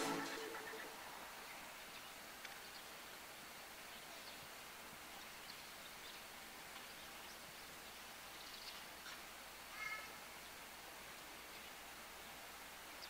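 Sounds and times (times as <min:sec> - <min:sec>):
low steady hiss: 0:00.0 - 0:13.0
faint bird chirps: 0:06.9 - 0:10.6.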